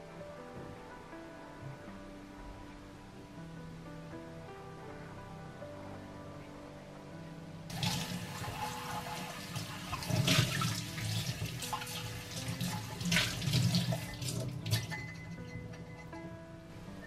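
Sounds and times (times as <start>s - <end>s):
soft background music: 0.0s - 17.0s
tap water running into sink: 7.7s - 15.0s
water splashing over mug: 7.7s - 15.0s.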